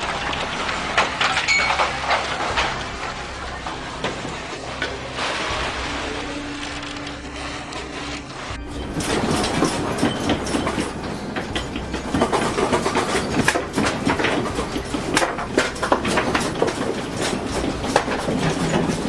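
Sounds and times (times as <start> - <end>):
low rumble: 0.0 - 15.2
house rattling and creaking: 0.0 - 19.0
windows and shelves clattering: 0.0 - 19.0.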